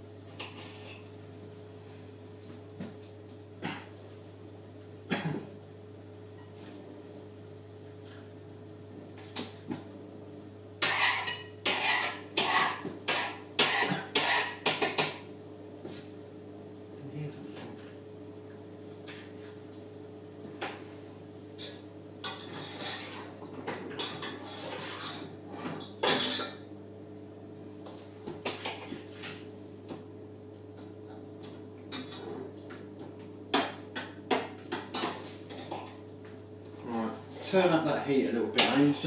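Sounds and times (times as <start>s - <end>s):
pots and cutlery clattering: 21.6s - 26.6s.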